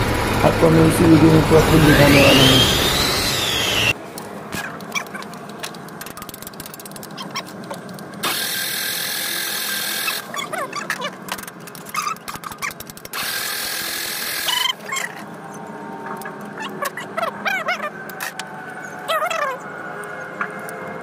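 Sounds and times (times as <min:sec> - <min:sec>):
diesel engine clattering: 0:00.0 - 0:04.0
loud steady hiss: 0:00.0 - 0:04.0.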